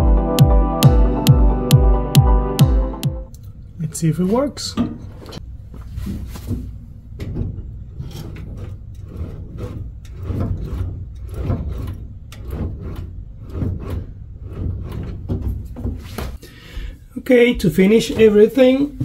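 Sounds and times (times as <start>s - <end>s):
low steady rumble: 3.3s - 19.0s
clutch pedal clunks and scrapes: 4.8s - 16.4s.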